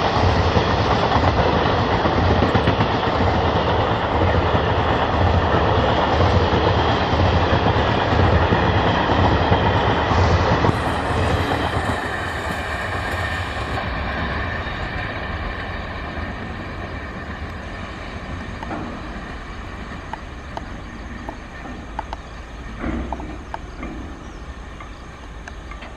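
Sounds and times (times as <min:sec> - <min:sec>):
train wheels rumbling on rails: 0:00.0 - 0:25.9.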